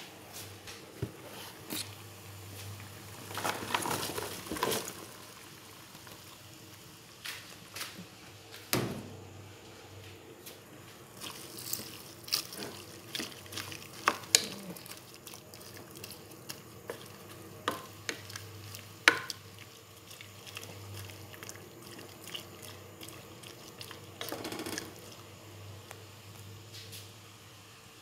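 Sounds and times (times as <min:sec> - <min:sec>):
utensil stirring in a pot: 0:11.1 - 0:25.9.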